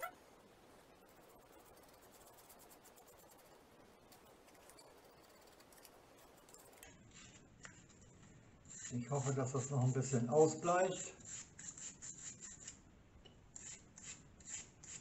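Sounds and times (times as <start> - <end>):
paintbrush scratching: 0.7 - 7.8, 8.6 - 12.8.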